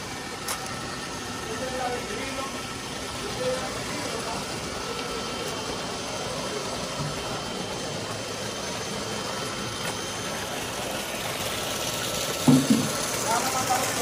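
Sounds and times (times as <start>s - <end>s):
machine hum: 0.0s - 14.0s
water churning and splashing: 0.0s - 14.0s.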